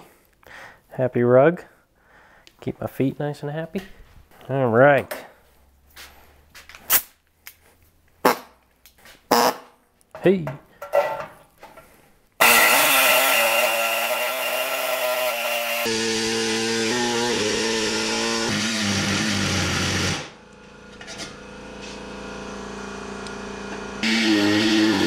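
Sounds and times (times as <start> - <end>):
pneumatic saw cutting sheet metal: 12.4 - 20.4, 24.0 - 25.0.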